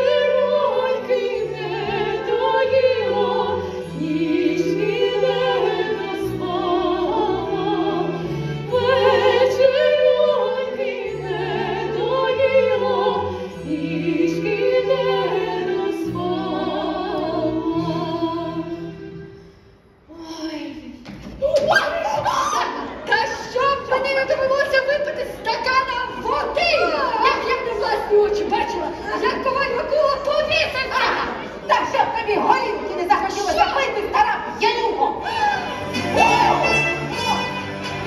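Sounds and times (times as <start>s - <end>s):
women singing with vibrato: 0.0s - 19.4s, 20.1s - 38.0s
instrumental accompaniment: 35.6s - 38.0s.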